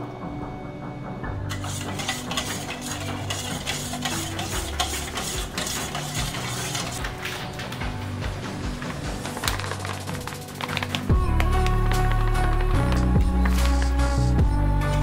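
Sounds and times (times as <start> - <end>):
spoon clinking in metal bowl: 1.5 - 7.0.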